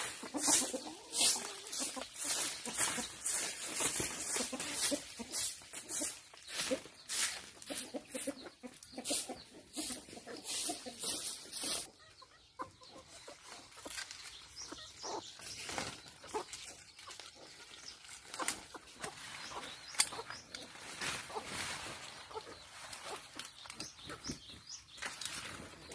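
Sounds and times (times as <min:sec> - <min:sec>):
hoe scraping dry soil: 0:00.0 - 0:08.2
leaves rustling: 0:00.0 - 0:08.3, 0:09.0 - 0:11.9, 0:13.3 - 0:25.9
chicken clucking: 0:00.0 - 0:25.9.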